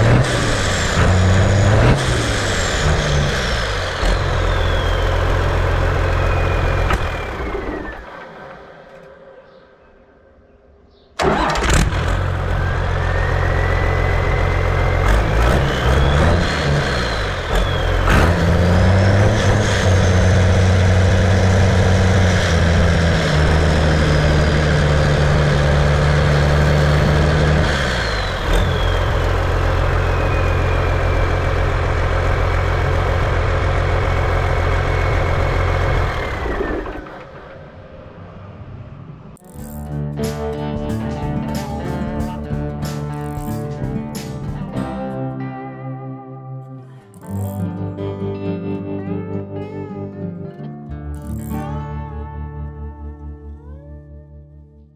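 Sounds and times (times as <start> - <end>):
diesel engine revving: 0.0 - 9.1, 11.2 - 45.0
turbocharger whine: 0.0 - 9.6, 11.2 - 45.0, 51.1 - 52.3.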